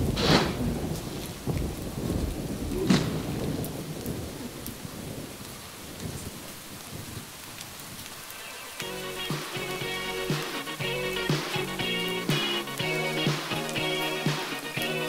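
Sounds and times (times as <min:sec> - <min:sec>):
thunder: 0:00.0 - 0:07.2
rain falling: 0:00.0 - 0:15.0.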